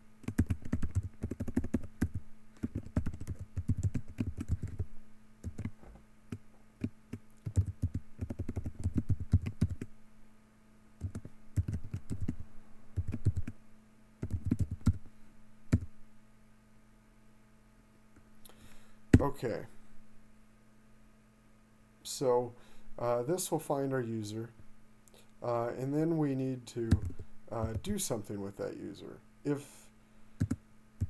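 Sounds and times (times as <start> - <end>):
computer keyboard typing: 0.2 - 4.8, 5.4 - 5.7, 6.8 - 9.9, 11.0 - 12.4, 13.0 - 13.6, 14.2 - 15.0, 26.9 - 27.8, 30.4 - 30.6.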